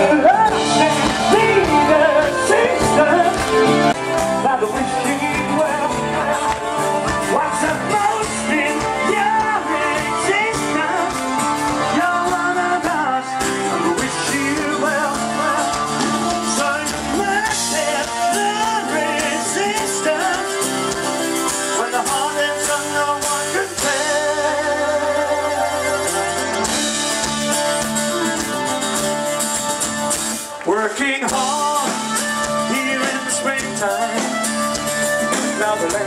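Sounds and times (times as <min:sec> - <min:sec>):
live country-rock band playing: 0:00.0 - 0:36.0.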